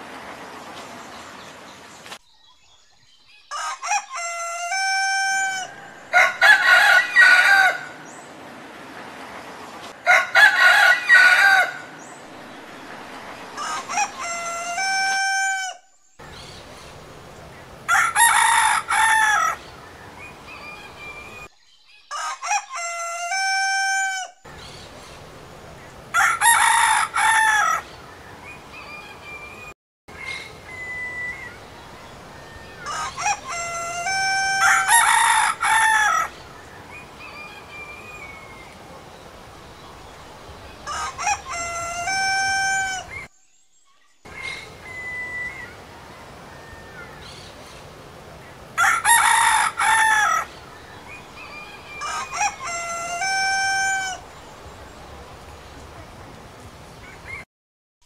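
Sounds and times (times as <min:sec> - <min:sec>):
roosters crowing: 0:03.5 - 0:08.2, 0:10.0 - 0:12.1, 0:13.6 - 0:15.8, 0:17.7 - 0:19.7, 0:22.1 - 0:24.4, 0:26.1 - 0:28.6, 0:32.6 - 0:38.7, 0:39.3 - 0:43.3, 0:48.7 - 0:55.0.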